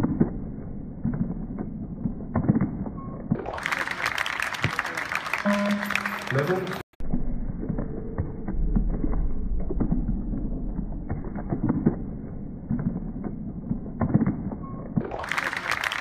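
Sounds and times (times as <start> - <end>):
low rumble: 7.0 - 14.6.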